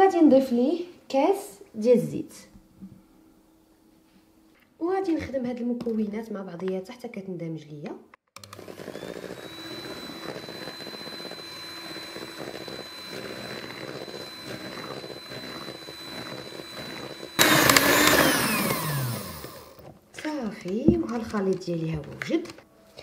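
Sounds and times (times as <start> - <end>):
electric hand mixer whining: 8.4 - 19.9.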